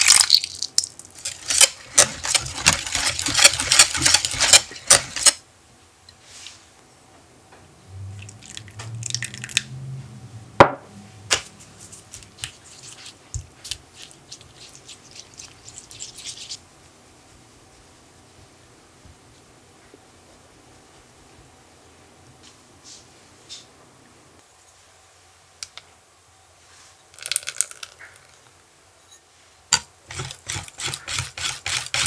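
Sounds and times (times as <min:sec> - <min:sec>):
wet mixing strokes in glass bowl: 0:01.2 - 0:05.4, 0:11.7 - 0:17.0, 0:30.1 - 0:32.0.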